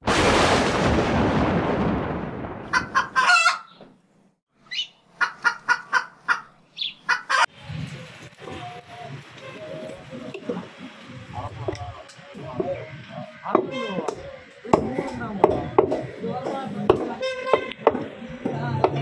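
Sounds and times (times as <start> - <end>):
loud thunder crack: 0.0 - 3.0
chicken clucks: 5.2 - 7.5.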